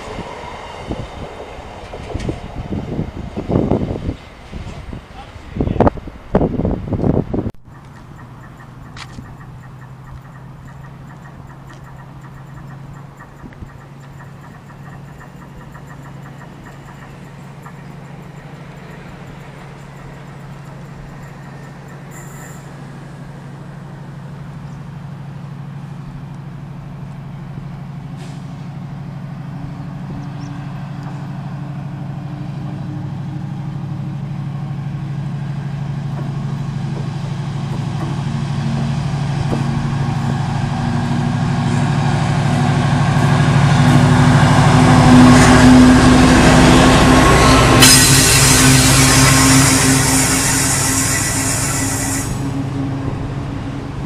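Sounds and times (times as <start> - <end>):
diesel locomotive engine approaching: 0.0 - 54.0.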